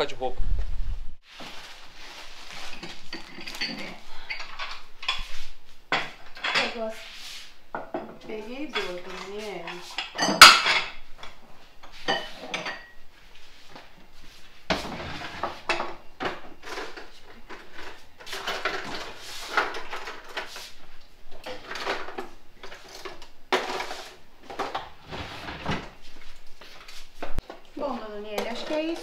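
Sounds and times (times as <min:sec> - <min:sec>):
crockery and cutlery clinking: 0:02.7 - 0:05.3, 0:05.9 - 0:07.0, 0:07.8 - 0:13.0.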